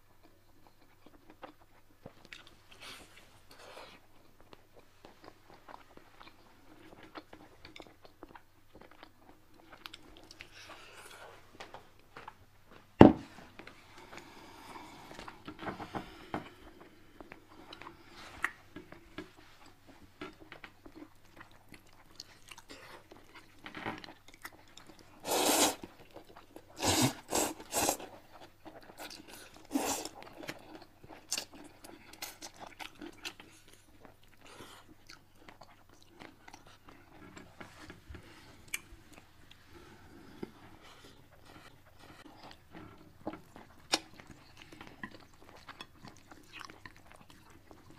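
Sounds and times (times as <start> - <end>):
chewing and crunching fried fish: 0.0 - 12.5, 15.0 - 47.9
slurping noodles: 25.2 - 25.8, 26.8 - 28.1, 29.7 - 30.2.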